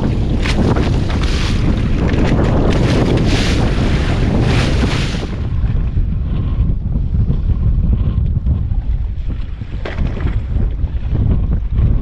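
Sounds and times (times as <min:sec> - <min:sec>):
sea washing against boat hull: 0:00.0 - 0:06.1
wind buffeting the microphone: 0:00.0 - 0:12.0.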